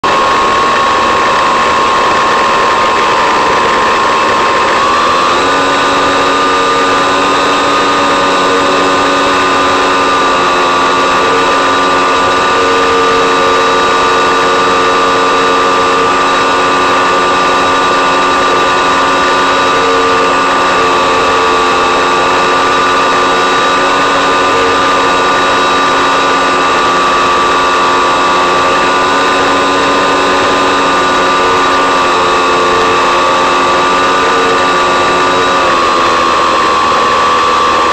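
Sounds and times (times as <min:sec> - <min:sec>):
electric motor and propeller whine: 0:00.0 - 0:37.9.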